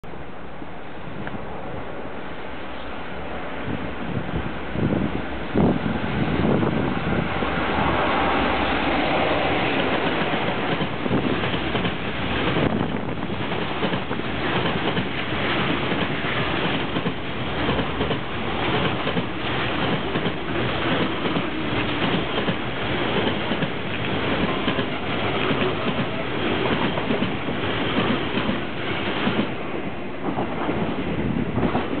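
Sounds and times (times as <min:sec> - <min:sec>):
freight train wagons rumbling: 0:02.4 - 0:32.0
wheels clacking over rail joints: 0:08.8 - 0:29.6.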